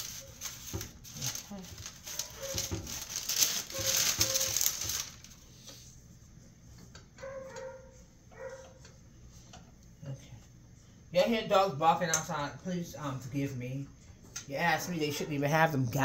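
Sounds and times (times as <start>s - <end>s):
parchment paper crinkling: 0.0s - 5.8s
dog barking faintly: 7.2s - 8.9s.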